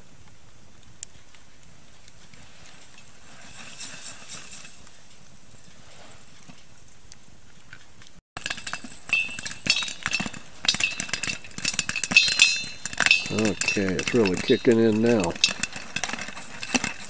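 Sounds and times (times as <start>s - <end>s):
lid rattling against metal pot: 8.4s - 17.0s
popcorn popping: 8.4s - 17.0s.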